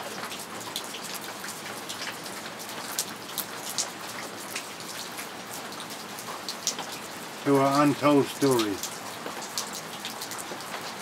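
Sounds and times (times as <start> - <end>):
steady rain hiss: 0.0 - 11.0
raindrops tapping: 7.5 - 10.9.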